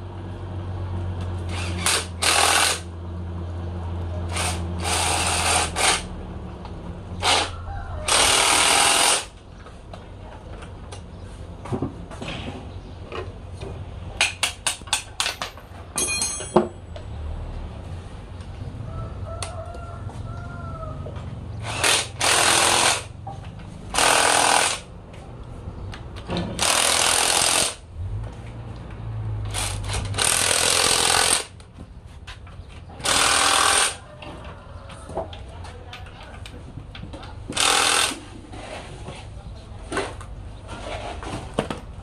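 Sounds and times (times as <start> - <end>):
impact wrench hammering on bolts: 1.5 - 2.9, 8.1 - 9.4, 14.2 - 16.8, 21.6 - 23.2, 23.9 - 24.9, 26.5 - 27.8, 29.5 - 31.6, 33.0 - 34.0, 37.5 - 38.3
ringing metal clank: 15.9 - 17.0.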